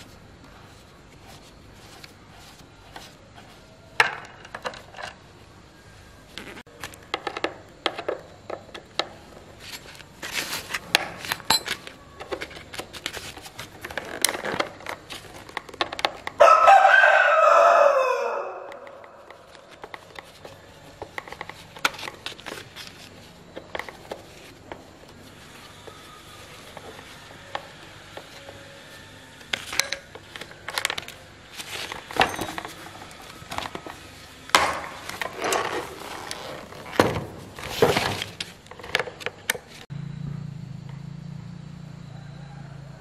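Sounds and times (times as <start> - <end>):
parts scraping on plastic sack: 9.6 - 16.0, 19.3 - 39.9.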